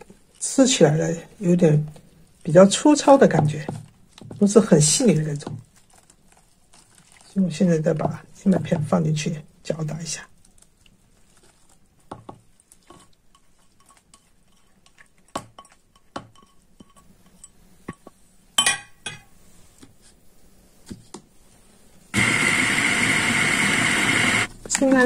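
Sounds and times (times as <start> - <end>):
glass bowl clinking: 18.6 - 19.3
food processor motor running: 22.2 - 24.5.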